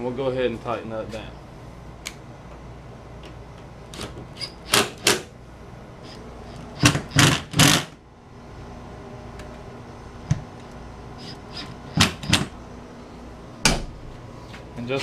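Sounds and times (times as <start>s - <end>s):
cordless impact driver: 6.1s - 8.0s.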